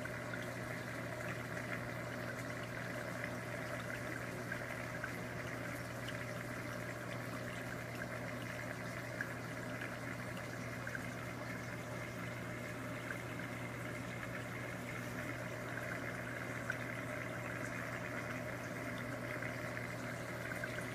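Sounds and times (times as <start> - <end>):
low pump hum: 0.0 - 20.9
water trickling and splashing: 0.0 - 20.9.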